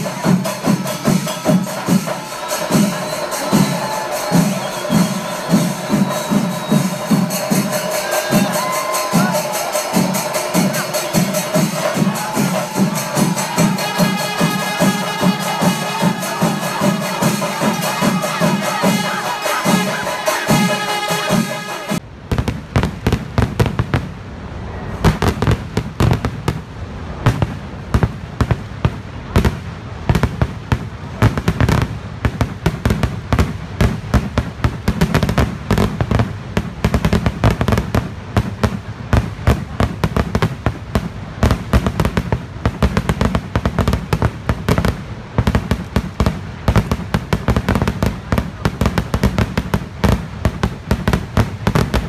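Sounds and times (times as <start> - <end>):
music: 0.0 - 22.0
fireworks cracks and bangs: 0.0 - 52.0.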